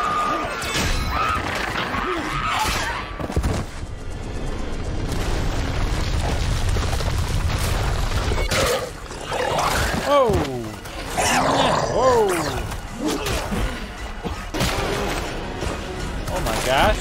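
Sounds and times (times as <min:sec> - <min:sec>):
dramatic music: 0:10.1 - 0:17.0.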